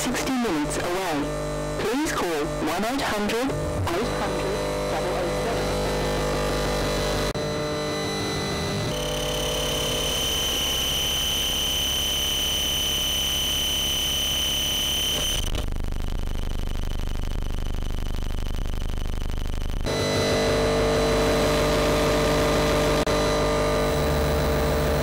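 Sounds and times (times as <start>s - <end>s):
high-pitched electrical whine: 0.0s - 25.0s
fine rapid buzz: 0.3s - 15.5s.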